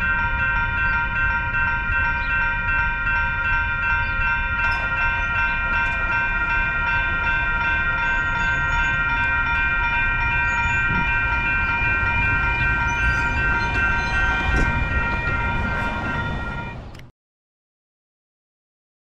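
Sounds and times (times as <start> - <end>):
crossing warning bells ringing: 0.0 - 17.1
wind rumble on microphone: 10.3 - 17.1.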